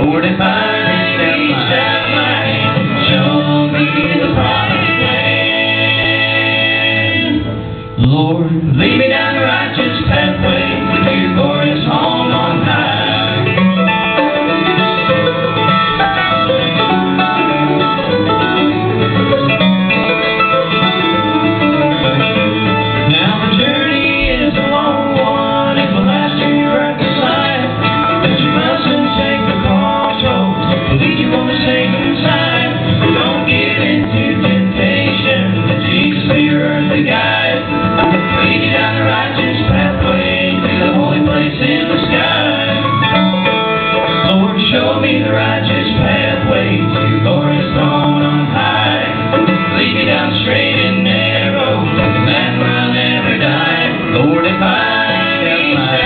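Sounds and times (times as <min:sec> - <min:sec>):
bluegrass band playing: 0:00.0 - 0:56.0
person singing: 0:23.0 - 0:56.0.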